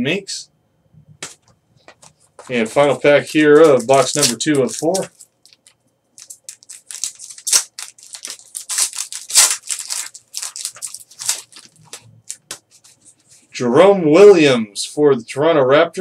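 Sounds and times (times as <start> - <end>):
card pack wrapper crinkling and tearing: 2.5 - 12.9.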